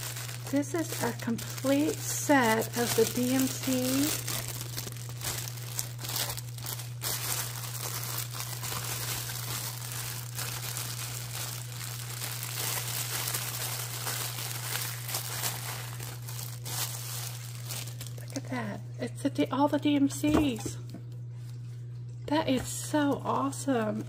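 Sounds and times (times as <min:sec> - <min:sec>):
plastic wrapping crinkling: 0:00.0 - 0:18.6
steady low hum: 0:00.0 - 0:24.0.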